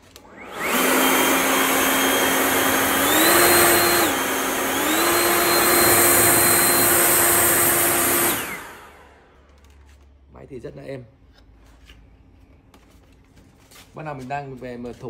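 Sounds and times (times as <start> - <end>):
leaf blower motor whine: 0.0 - 9.4.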